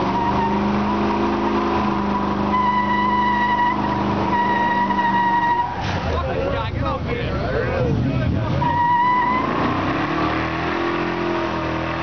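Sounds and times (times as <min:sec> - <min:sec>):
engine at high revs: 0:00.0 - 0:05.1, 0:08.4 - 0:12.0
tyres squealing: 0:00.0 - 0:06.2.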